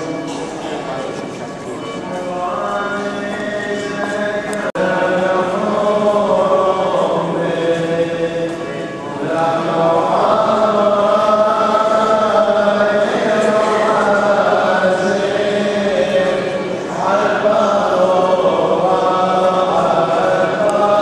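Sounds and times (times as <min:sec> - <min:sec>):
voices singing a slow chant: 0:02.3 - 0:21.0.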